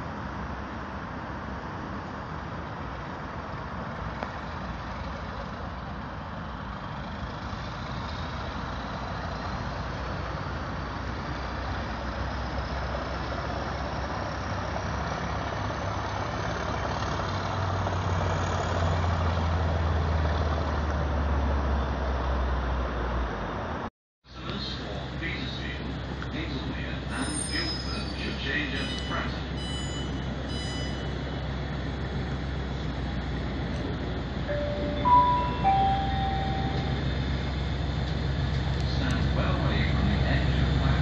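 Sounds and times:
diesel train engine hum: 0.0 - 20.3, 21.1 - 41.0
faint rising whine: 34.5 - 37.8.

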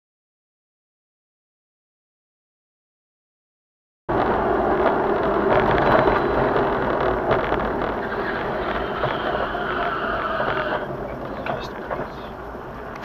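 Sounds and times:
car engine and tyres on road: 4.1 - 13.0.

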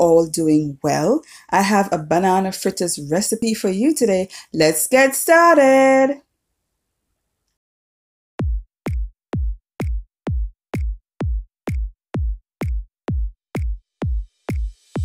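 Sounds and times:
drum machine kick drum: 8.4 - 15.0.

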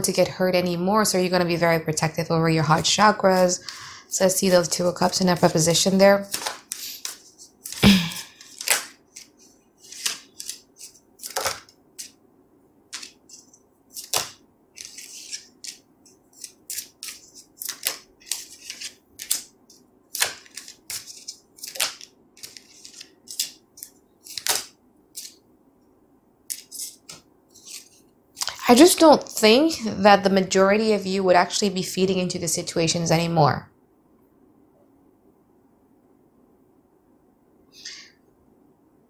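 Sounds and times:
cards shuffled by hand: 6.2 - 12.2, 12.9 - 25.4, 26.5 - 28.7.

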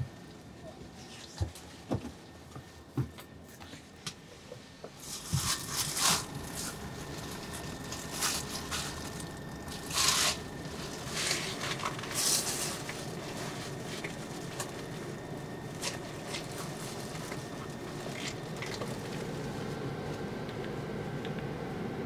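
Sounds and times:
low bus cabin hum: 0.0 - 22.0
fabric rustling: 5.0 - 19.7.

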